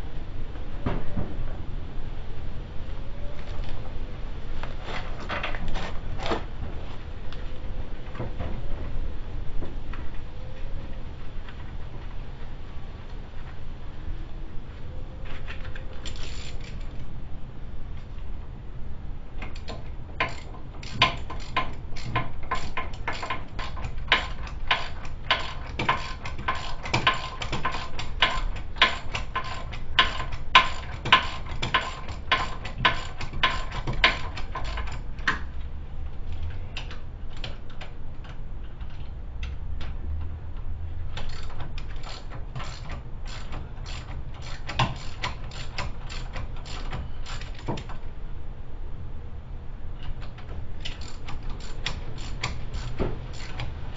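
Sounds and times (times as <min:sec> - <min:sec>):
ratchet wrench clicking: 0:16.0 - 0:17.0, 0:19.4 - 0:35.4, 0:41.2 - 0:48.0, 0:50.8 - 0:53.7.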